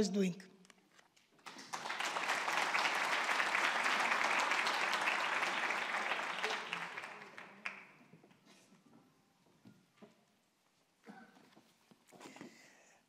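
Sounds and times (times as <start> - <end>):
audience applauding: 1.4 - 8.0.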